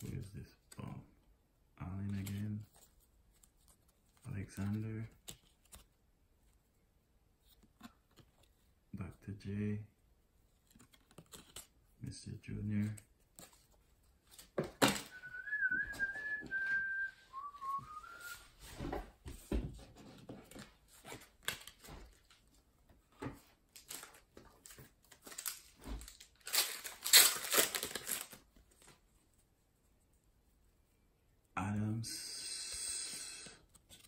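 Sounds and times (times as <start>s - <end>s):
whistled notes: 15.0s - 18.5s
foil wrapper tearing: 25.3s - 28.4s.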